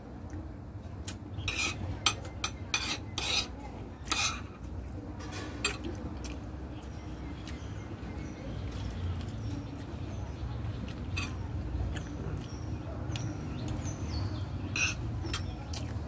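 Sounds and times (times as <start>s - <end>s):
fork scraping a plate: 1.4s - 5.9s, 10.9s - 11.4s, 14.6s - 15.6s.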